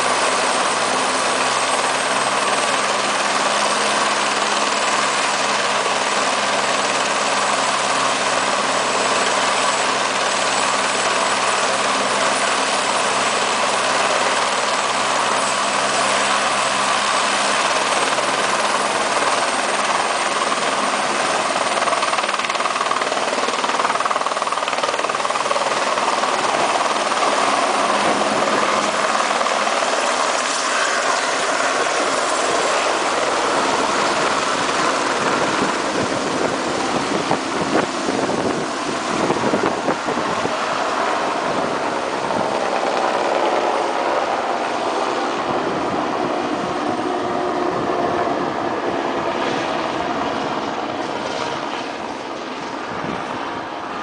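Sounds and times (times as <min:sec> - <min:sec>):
helicopter rotor blades: 0:00.0 - 0:54.0
helicopter turbine whine: 0:00.0 - 0:54.0.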